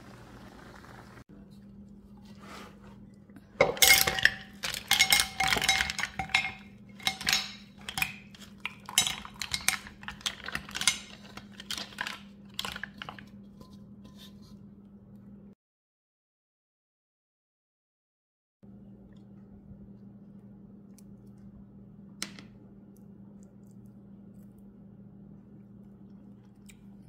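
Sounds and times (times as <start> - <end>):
mussel shells clattering in a bowl: 3.6 - 13.4.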